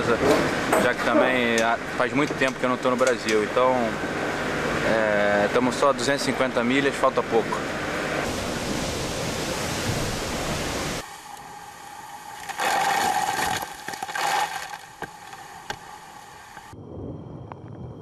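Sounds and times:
wind and water hissing: 0:03.6 - 0:17.2
spray rushing over bow: 0:08.2 - 0:11.4.

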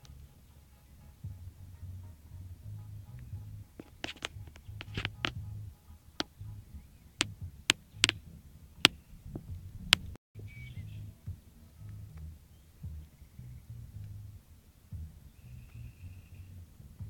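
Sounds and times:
low rumble: 0:00.0 - 0:17.0
sharp clicks: 0:03.8 - 0:05.4, 0:07.2 - 0:08.2.

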